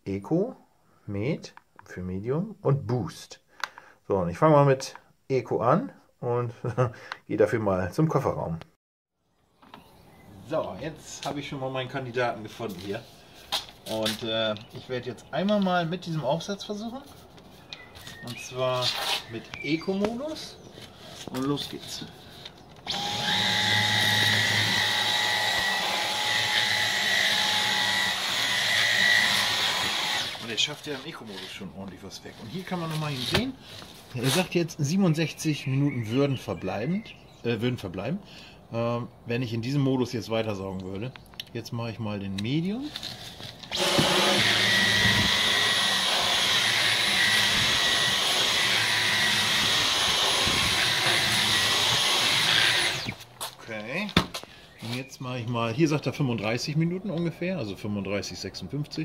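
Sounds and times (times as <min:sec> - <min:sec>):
cordless vacuum whining: 0:22.8 - 0:30.6, 0:43.6 - 0:53.2.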